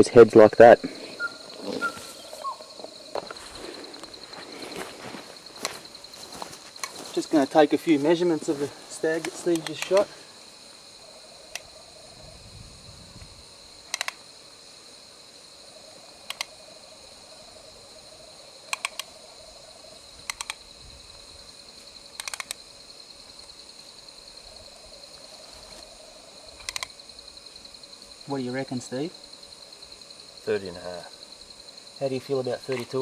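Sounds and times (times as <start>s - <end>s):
high drone of insects: 0.0s - 33.0s
sharp clicks: 9.2s - 10.1s, 13.9s - 14.2s, 16.3s - 16.5s, 18.7s - 19.1s, 20.2s - 20.6s, 22.2s - 22.6s, 26.6s - 27.0s.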